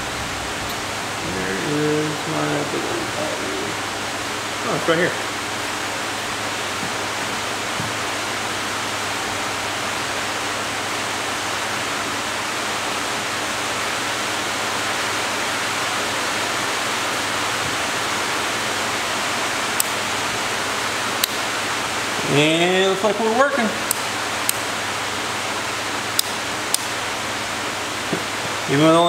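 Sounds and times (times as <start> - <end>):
faint low hum: 0.0 - 7.4
electric fans rushing: 0.0 - 29.0.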